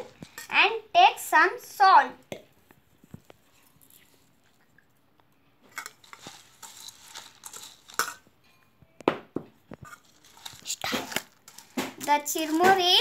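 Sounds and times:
puffed rice rustling and scraping: 0:05.7 - 0:08.3, 0:09.8 - 0:13.0.

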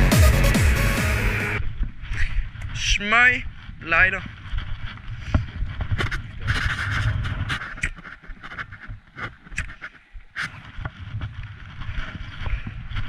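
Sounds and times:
wind rumbling on microphone: 0:01.6 - 0:13.0.

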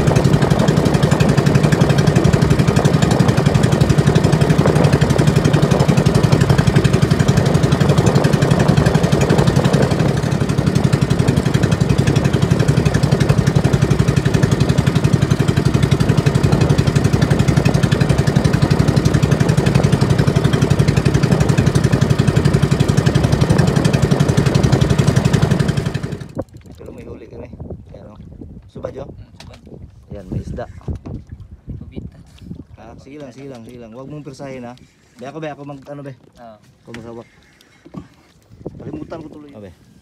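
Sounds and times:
small boat engine pulsing: 0:00.0 - 0:26.7.

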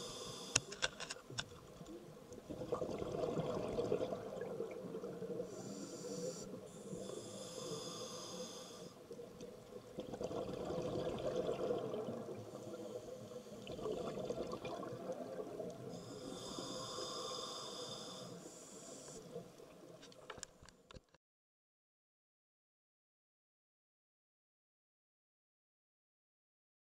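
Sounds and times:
regulator hissing inhalation: 0:00.0 - 0:00.8, 0:05.5 - 0:09.0, 0:16.0 - 0:19.4
bubbling exhalation: 0:02.5 - 0:05.0, 0:10.0 - 0:12.5, 0:13.6 - 0:15.6.

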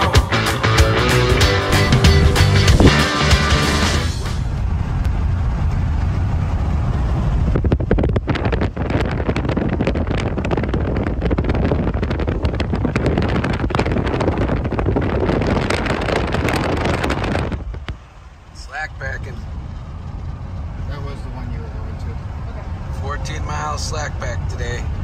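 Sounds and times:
road noise inside vehicle: 0:00.0 - 0:25.0
wind rushing buffeting microphone: 0:01.5 - 0:03.0, 0:04.1 - 0:25.0.

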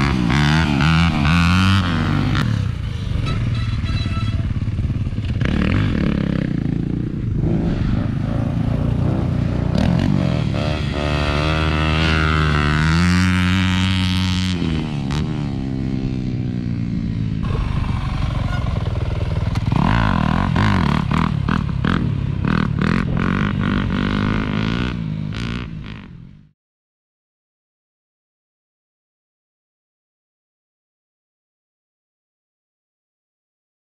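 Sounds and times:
dirt bike engines revving: 0:00.0 - 0:26.4.

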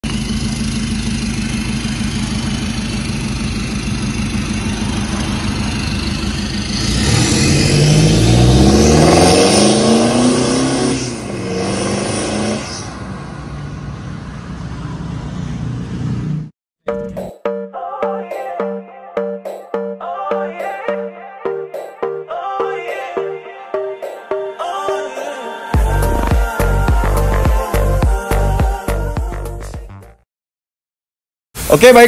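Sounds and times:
diesel car engine idling and revving: 0:00.0 - 0:16.5.

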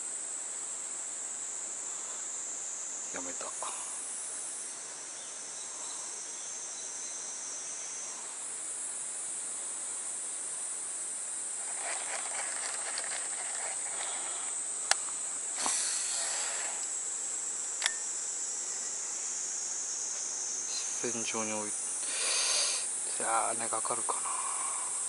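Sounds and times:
insects chorus: 0:00.0 - 0:25.0
rustling: 0:11.5 - 0:15.8.

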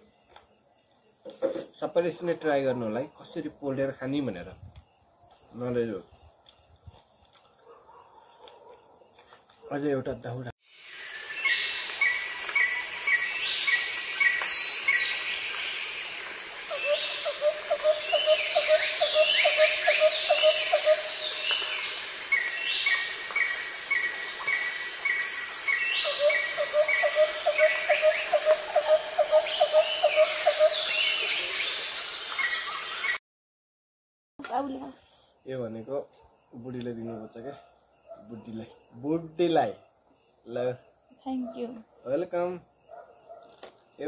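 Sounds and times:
low rapid pulsing insect call: 0:00.0 - 0:07.3, 0:10.1 - 0:33.2, 0:34.5 - 0:44.0
crickets trilling: 0:00.0 - 0:07.4, 0:09.1 - 0:33.2, 0:34.5 - 0:44.0
insect chirps and sweeping calls: 0:10.2 - 0:33.2.

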